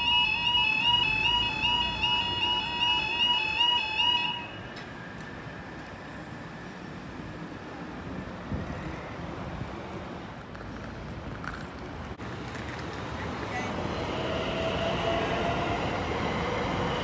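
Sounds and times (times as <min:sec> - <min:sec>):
crossing warning alarm tones: 0:00.0 - 0:05.0
road traffic and street noise: 0:00.0 - 0:17.0.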